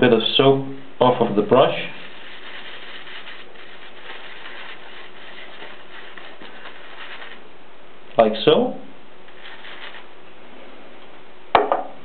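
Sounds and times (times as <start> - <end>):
even hiss: 0.0 - 11.1
shaving brush scratching soap: 1.2 - 7.4, 9.3 - 10.1.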